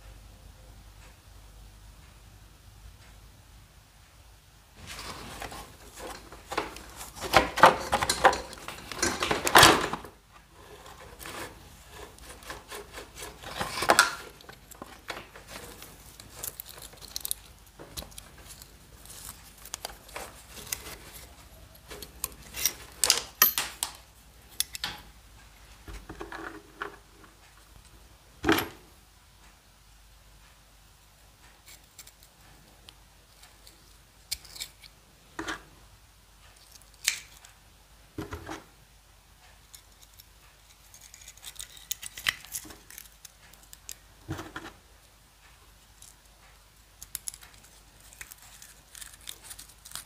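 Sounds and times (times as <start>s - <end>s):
hand tools scraping metal parts: 4.9s - 23.6s.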